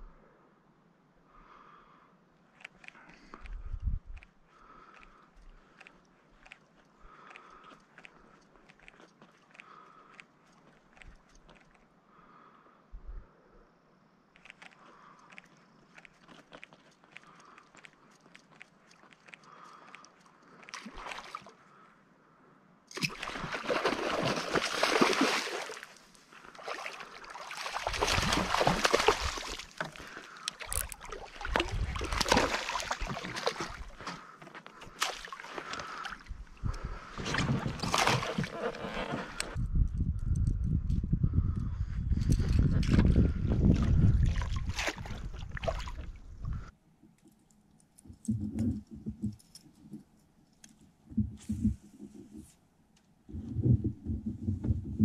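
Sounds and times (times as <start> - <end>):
water sloshing around kayak: 23.0 - 39.6, 42.6 - 46.7.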